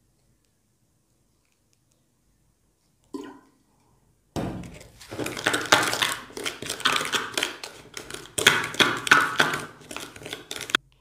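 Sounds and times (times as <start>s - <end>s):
spoon scraping gritty paste in bowl: 4.7s - 10.8s.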